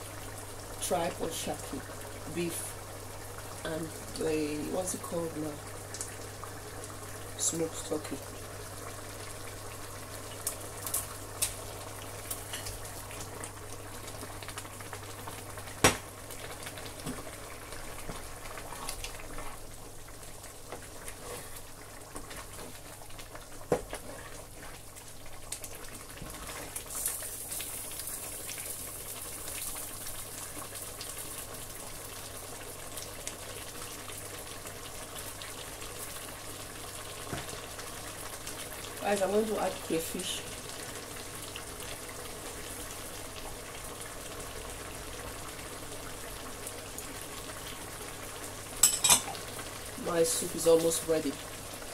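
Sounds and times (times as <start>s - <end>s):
soup bubbling in a pot: 0.0s - 51.9s
bowl and spoon clattering on pot: 48.8s - 49.4s.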